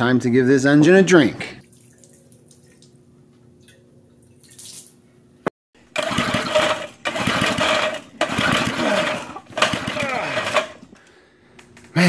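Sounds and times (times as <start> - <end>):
small engine cranking: 5.9 - 10.8.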